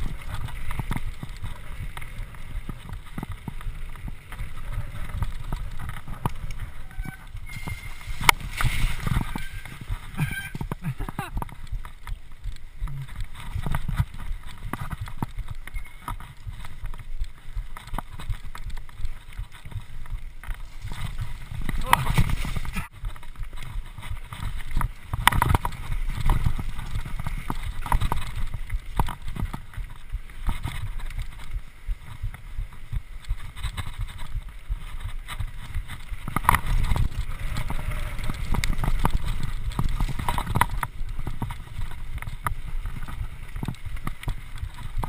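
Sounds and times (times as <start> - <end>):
bike knocking and rattling: 0.0 - 45.0
bike tyres rumbling on rocky ground: 0.0 - 45.0.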